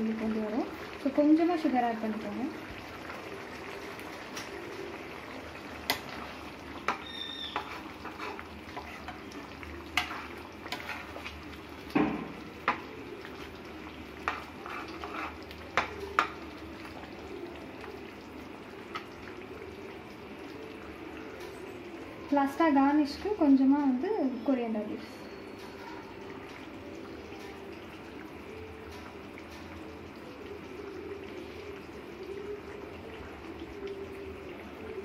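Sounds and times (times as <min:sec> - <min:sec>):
thick gravy bubbling: 0:00.0 - 0:35.0
ladle knocking against pan: 0:11.9 - 0:12.8.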